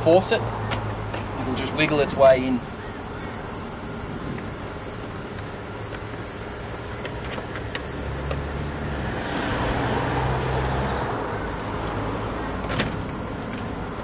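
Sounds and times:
passing motor vehicle: 6.6s - 14.0s.

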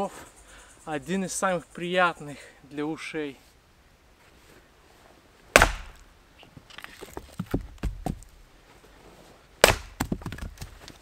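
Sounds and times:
axe chopping firewood: 5.5s - 6.0s, 7.0s - 8.3s, 9.6s - 11.0s
light wooden knocks: 7.0s - 8.3s.

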